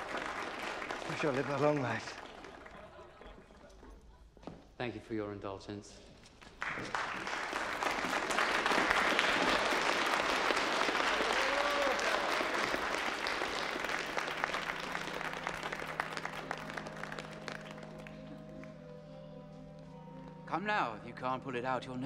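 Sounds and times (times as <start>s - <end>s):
audience applauding: 0.0s - 3.5s, 6.4s - 18.8s.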